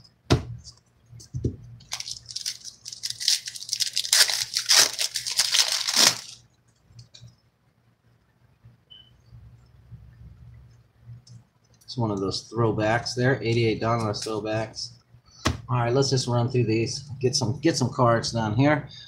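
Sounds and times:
foil wrapper tearing and crinkling: 1.9 - 6.4.

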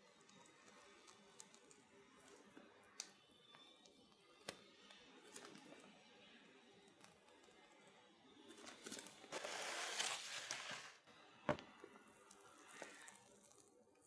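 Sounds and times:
plastic piping bag crinkling: 8.5 - 11.0, 12.0 - 14.0.

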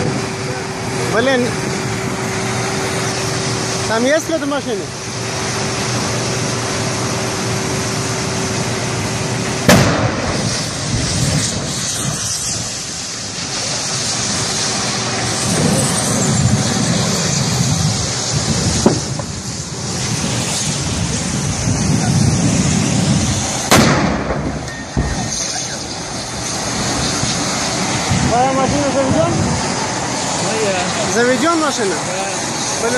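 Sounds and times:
gas cylinders bursting with bangs: 0.0 - 30.5
fire and venting gas rushing: 0.0 - 32.9.

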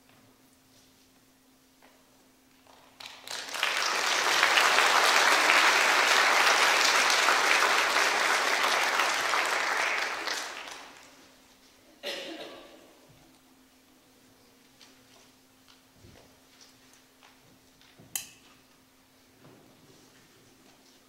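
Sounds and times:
congregation applauding: 3.0 - 11.3.

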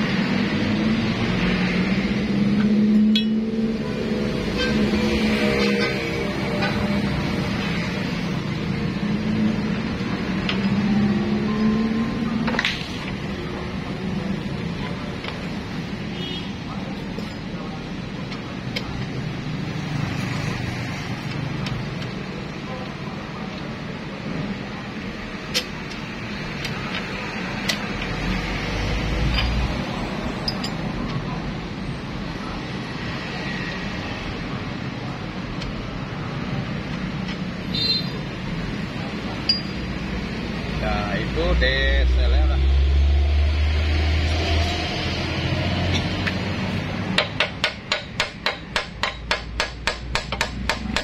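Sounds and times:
hammer striking metal: 2.6 - 3.6, 39.4 - 39.8, 47.1 - 51.0.

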